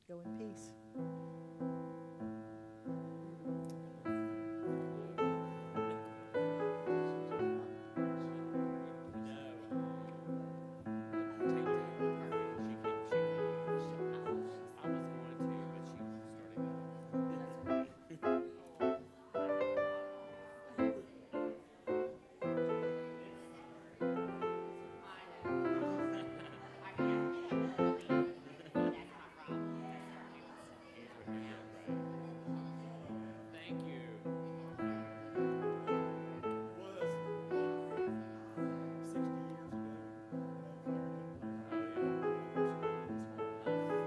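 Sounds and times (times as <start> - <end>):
grand piano playing slow piece: 0.0 - 44.0.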